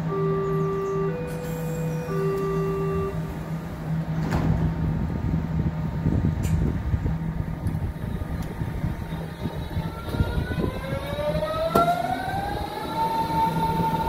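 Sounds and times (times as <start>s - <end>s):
electric train hum: 0.0s - 14.0s
traction drive whine rising in pitch: 7.6s - 14.0s.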